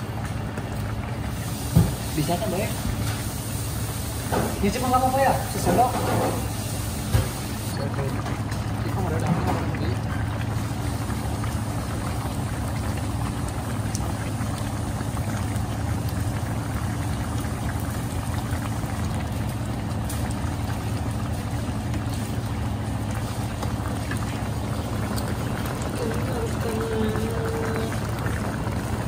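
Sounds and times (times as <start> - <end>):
broth bubbling in a wok: 0.0 - 29.0
low steady hum: 7.5 - 29.0.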